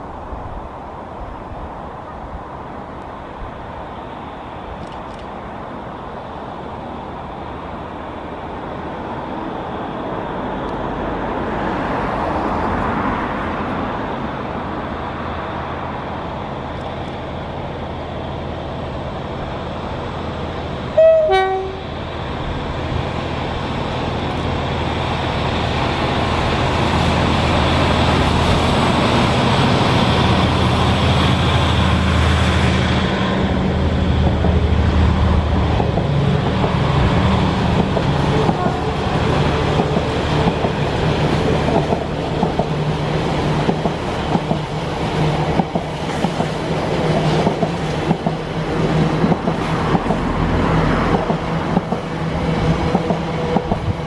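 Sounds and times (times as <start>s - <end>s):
diesel locomotive engine: 0.0s - 54.0s
two-tone train horn: 21.0s - 21.9s, 38.3s - 39.2s.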